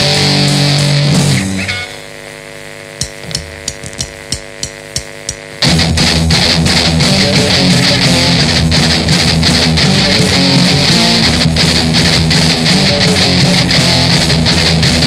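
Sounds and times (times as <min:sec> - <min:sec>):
ringing guitar chord: 0:00.0 - 0:02.1, 0:05.6 - 0:15.0
heavy band with distorted guitars: 0:00.0 - 0:02.2, 0:05.6 - 0:15.0
sharp percussion clicks: 0:03.0 - 0:05.8.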